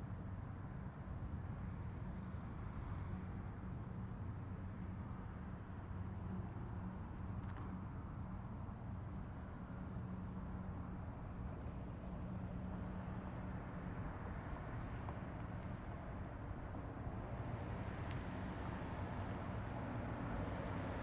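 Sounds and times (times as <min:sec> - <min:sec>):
high insect trill: 0:10.8 - 0:21.0.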